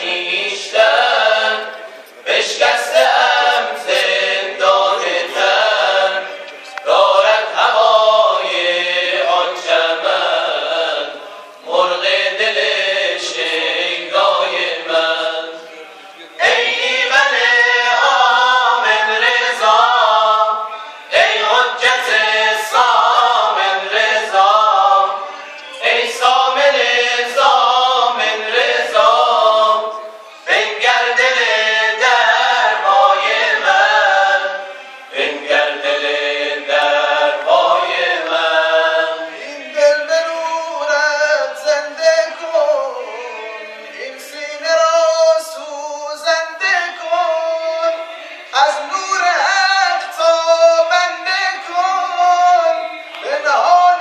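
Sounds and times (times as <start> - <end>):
male group chanting a cappella: 0.0 - 54.0.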